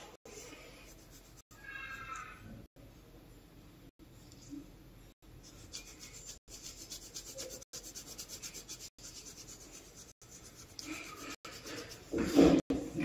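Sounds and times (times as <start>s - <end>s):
scratchy rubbing on paper: 0.3s - 1.5s, 5.4s - 12.7s.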